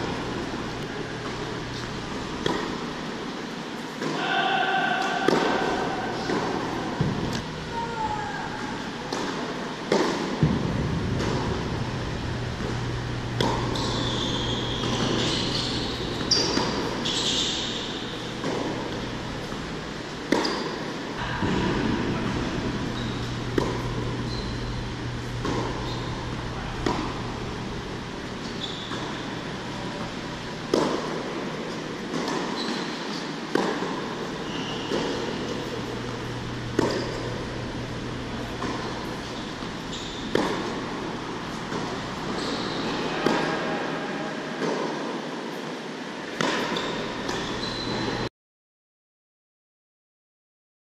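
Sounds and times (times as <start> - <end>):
steady low hum: 0.0 - 4.1, 5.4 - 48.3
tennis balls hit by rackets: 0.0 - 7.6, 8.6 - 43.6, 44.6 - 45.1, 46.3 - 48.2
shoes squeaking on court: 12.8 - 21.3, 22.7 - 30.8, 31.7 - 33.3, 34.2 - 37.4, 38.1 - 43.3, 46.4 - 48.3.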